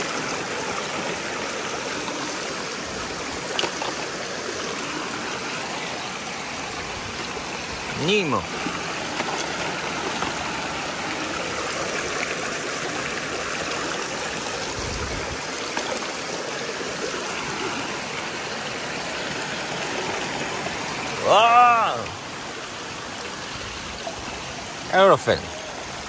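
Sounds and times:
waterfall rushing over rock: 0.0s - 26.0s.

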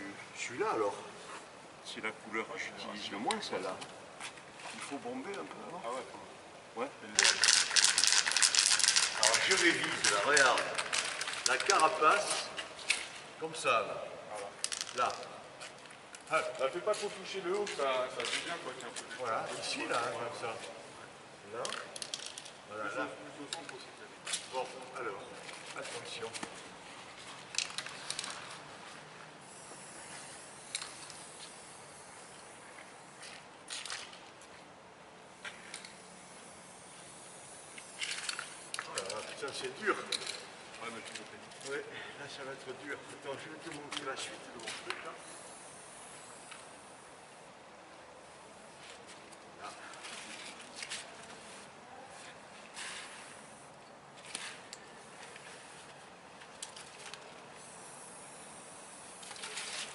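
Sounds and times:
spray paint can hissing: 7.1s - 13.2s, 27.5s - 28.8s, 29.4s - 34.4s, 35.3s - 41.2s, 44.0s - 47.4s, 52.6s - 59.9s.

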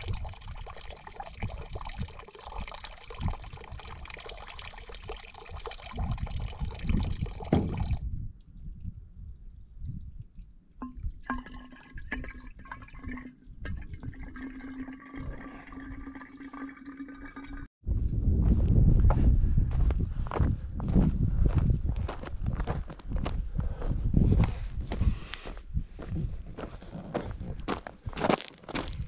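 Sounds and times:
water filling a bottle: 0.0s - 8.0s, 10.8s - 17.7s
water splashing into stone trough: 0.0s - 8.0s, 10.8s - 17.7s.

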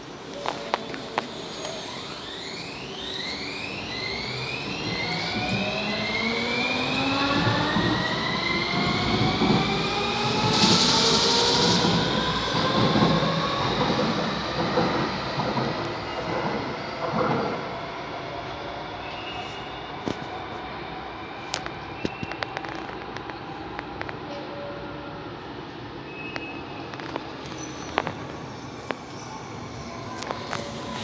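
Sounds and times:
train traction drive whine: 0.0s - 16.2s
wheels rumbling on rail: 0.0s - 17.7s.

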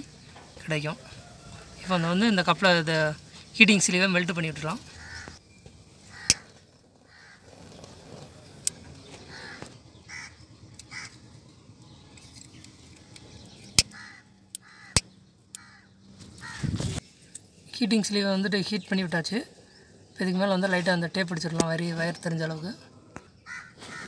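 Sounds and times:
crows cawing: 4.9s - 5.4s, 6.1s - 7.5s, 9.2s - 11.2s, 13.8s - 16.7s, 23.4s - 24.0s.

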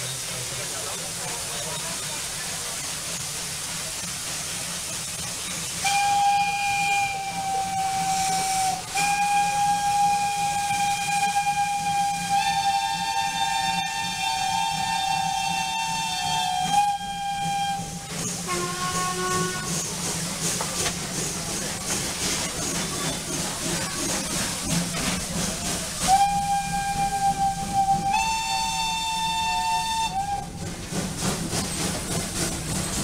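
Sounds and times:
steam hissing: 0.0s - 33.0s
steam locomotive whistle: 5.8s - 19.9s, 26.0s - 30.7s.

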